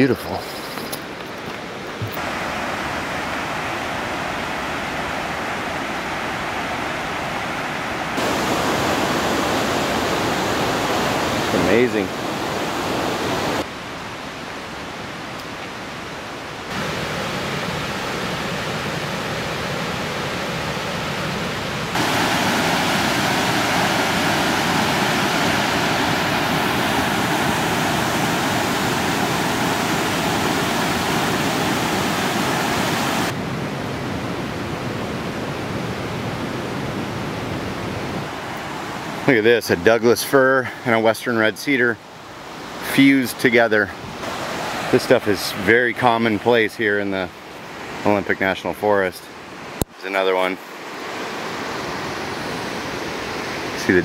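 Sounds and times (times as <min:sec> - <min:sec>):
whitewater rushing over rocks: 0:02.0 - 0:13.7, 0:16.4 - 0:33.5, 0:38.3 - 0:46.7.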